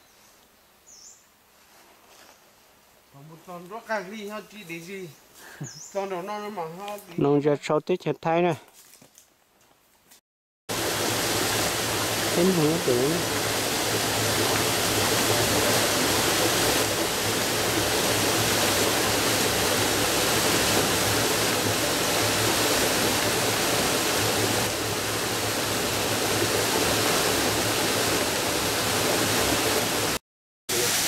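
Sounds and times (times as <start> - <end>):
water cascading over rocks: 10.7 - 31.0.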